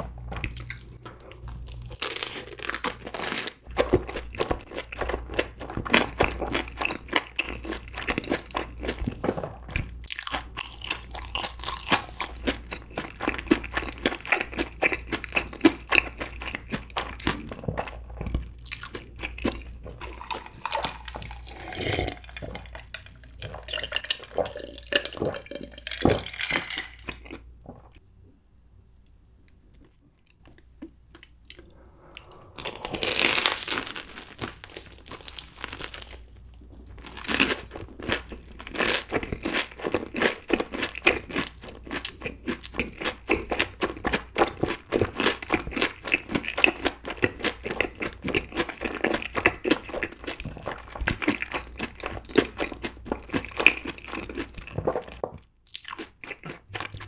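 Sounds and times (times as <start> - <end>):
crunchy chewing: 0.4 - 27.4, 29.8 - 57.0
wet mouth sounds: 30.3 - 37.7
swallowing a drink: 31.5 - 35.1.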